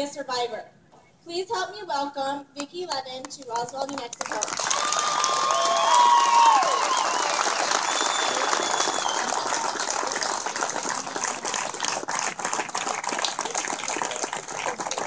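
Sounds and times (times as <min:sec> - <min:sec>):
crowd applauding and cheering: 0:04.2 - 0:15.0
thin whistle: 0:06.9 - 0:09.3.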